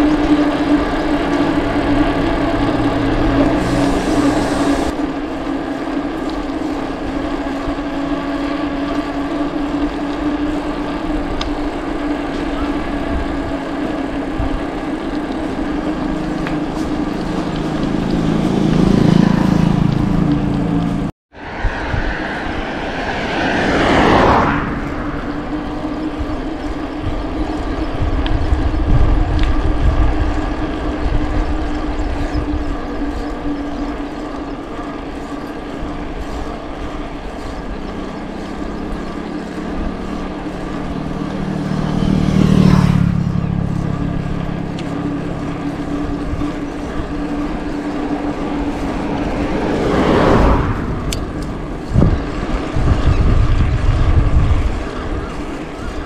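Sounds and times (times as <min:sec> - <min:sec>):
steady hum: 0:00.0 - 0:21.1
vehicles passing: 0:00.0 - 0:56.0
wind rumbling on microphone: 0:00.0 - 0:56.0.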